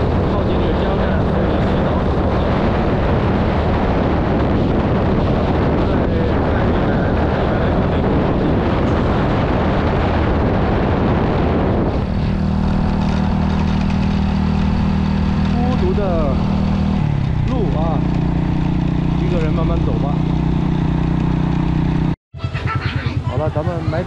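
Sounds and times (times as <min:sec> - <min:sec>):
wind rushing on microphone: 0:00.0 - 0:22.2
motorbike engine humming: 0:00.0 - 0:24.0.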